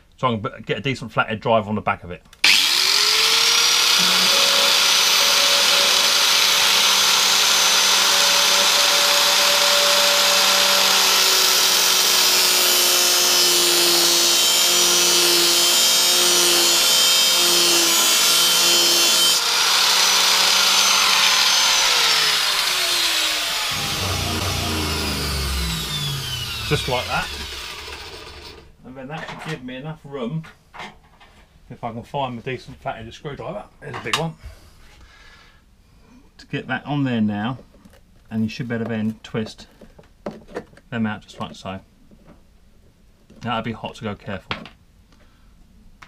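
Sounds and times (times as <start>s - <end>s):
handheld grinder whining: 2.4s - 28.7s
disc grinding metal: 2.5s - 14.7s, 16.9s - 28.7s.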